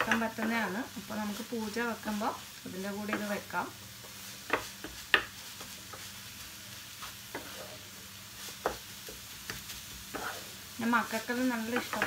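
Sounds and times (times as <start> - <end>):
food sizzling: 0.0 - 12.0
spatula scraping pan: 7.0 - 12.0.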